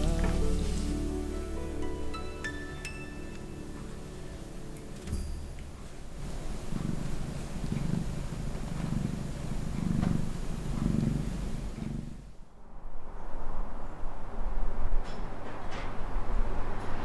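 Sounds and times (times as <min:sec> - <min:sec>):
cat purring: 0:06.2 - 0:12.3.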